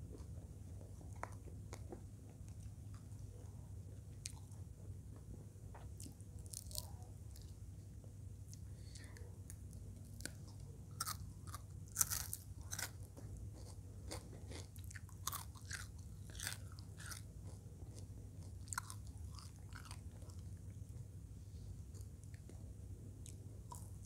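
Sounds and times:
crisp chewing crunches: 4.2s - 4.6s, 6.0s - 7.6s, 8.5s - 21.0s, 23.2s - 24.0s.

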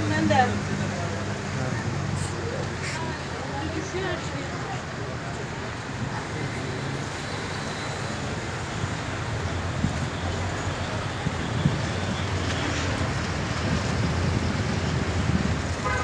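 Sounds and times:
car engines passing: 0.0s - 16.0s.

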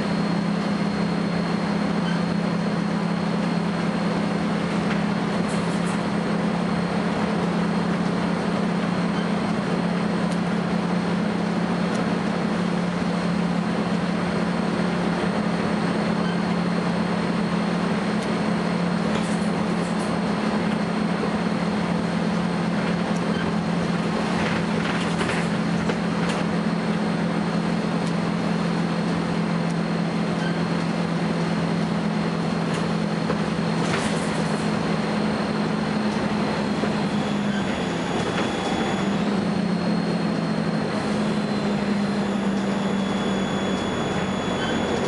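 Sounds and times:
bus engine drone: 0.0s - 45.0s
high-pitched whine: 28.3s - 45.0s.

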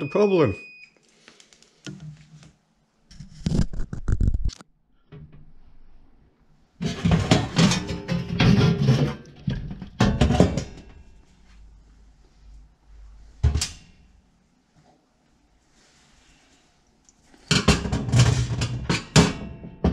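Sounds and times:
metal panel clattering and scraping: 6.8s - 11.0s, 17.4s - 19.9s.

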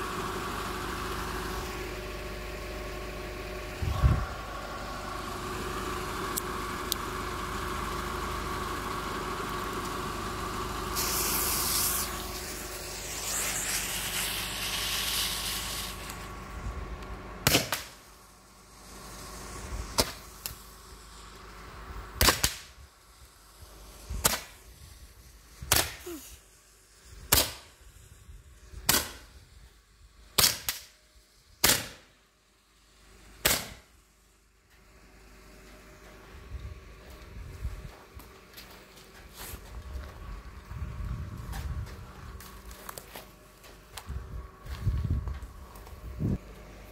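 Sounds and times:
steady hum: 0.8s - 8.6s, 10.4s - 30.4s
fuse hissing: 10.8s - 16.8s, 17.6s - 22.2s, 22.8s - 28.6s.

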